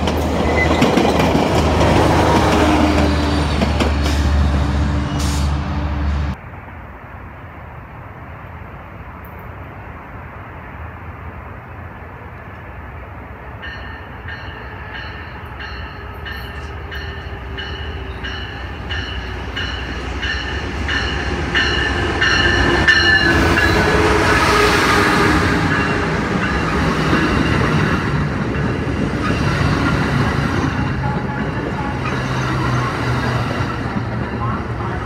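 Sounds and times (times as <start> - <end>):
train passing on rails: 0.0 - 35.0
train bell ringing: 13.6 - 24.0, 25.7 - 27.9, 30.6 - 35.0.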